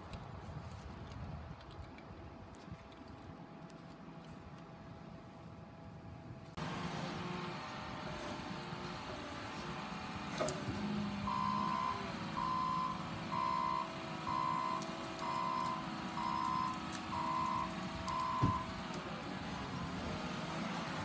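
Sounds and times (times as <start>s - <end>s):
diesel engine running: 4.7s - 21.0s
backup alarm beeping: 11.3s - 18.7s.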